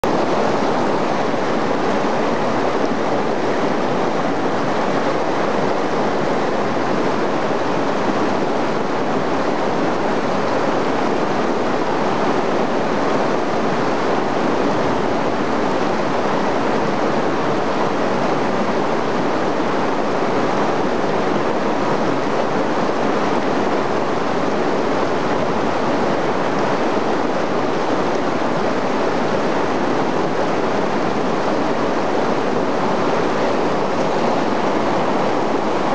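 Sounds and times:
river rapids roaring: 0.0 - 35.9.

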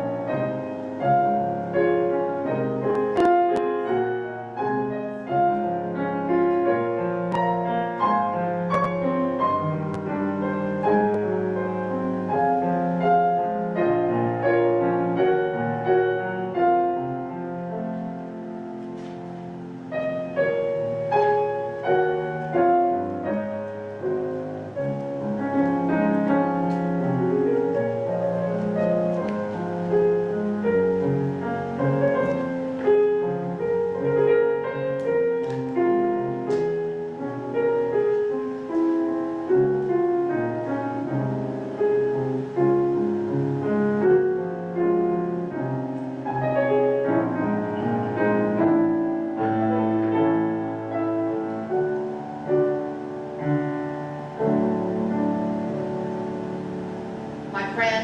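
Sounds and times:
grand piano playing: 0.0 - 58.0.

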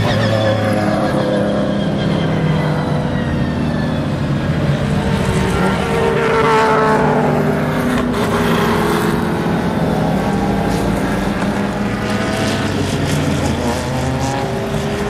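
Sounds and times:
race cars passing at speed: 0.0 - 15.0.

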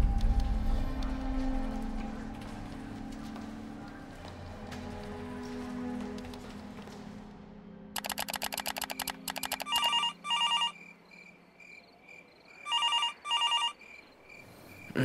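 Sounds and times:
rapid clicks: 8.0 - 10.0
telephone double ring: 8.0 - 10.8.

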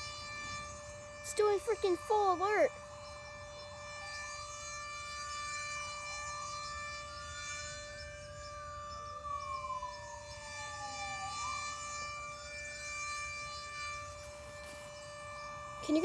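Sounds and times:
police car siren wailing: 0.0 - 16.0
warning siren steady tone: 0.0 - 16.0.

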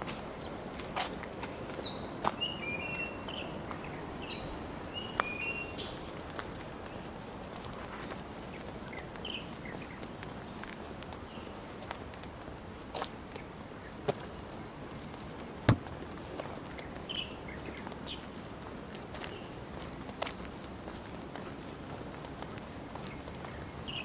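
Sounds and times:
outdoor hiss: 0.0 - 8.4
footsteps on asphalt: 0.0 - 24.0
faint bird chirps: 1.5 - 6.1.

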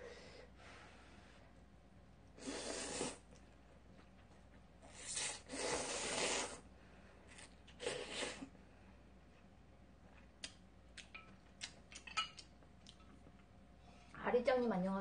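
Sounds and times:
slurping noodles: 2.4 - 3.3, 4.9 - 6.6.

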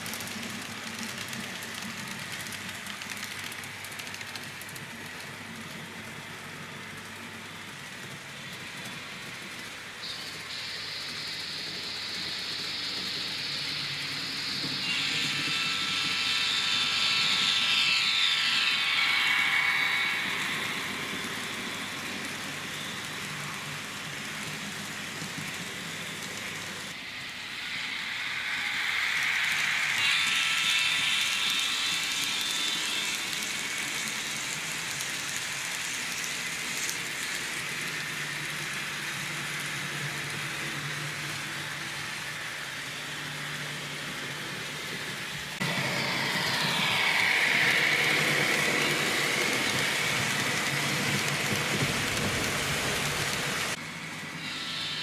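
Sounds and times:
model train wheels rattling on rails: 0.0 - 53.8.

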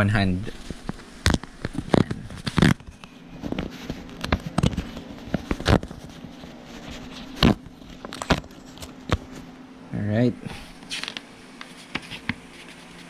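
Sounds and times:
paper tearing and crinkling: 0.8 - 7.6.

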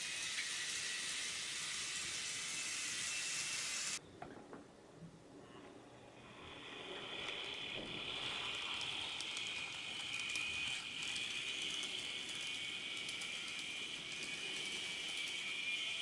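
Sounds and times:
model train motor whine: 0.0 - 4.0, 6.2 - 16.0
wheels clicking over rail joints: 7.0 - 16.0.

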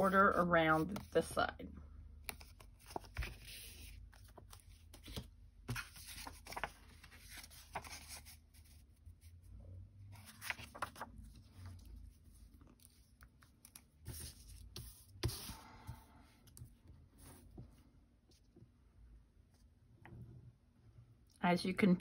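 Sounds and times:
paper rustling: 0.8 - 1.1, 2.3 - 8.8, 10.1 - 16.0.

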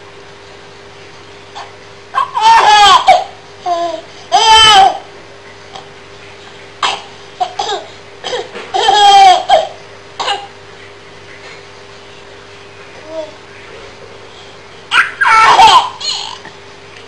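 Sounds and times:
faint steady hum: 0.0 - 17.0
baby laughing: 1.6 - 5.1, 6.8 - 10.5, 14.9 - 16.5.

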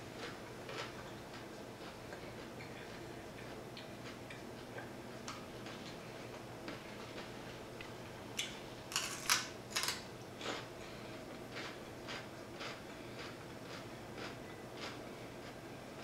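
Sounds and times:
crisp crunches of celery: 8.4 - 10.7.

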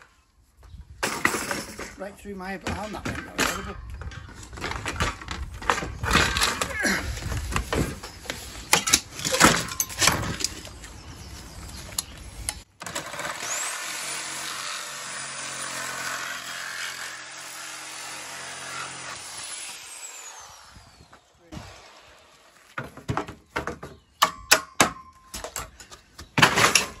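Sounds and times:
reciprocating saw cutting plastic: 12.5 - 22.8
knocks and clatter: 22.8 - 27.0.

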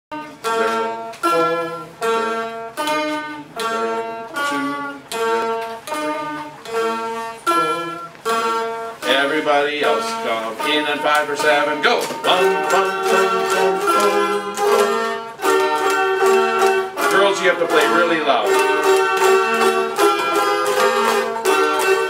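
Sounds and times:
dulcimer notes: 0.1 - 22.0.

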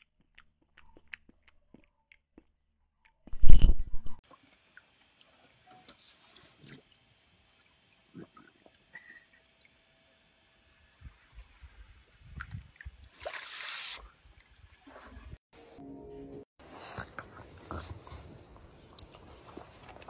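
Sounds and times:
insects buzzing: 4.2 - 15.4
water sounds: 11.4 - 15.4.

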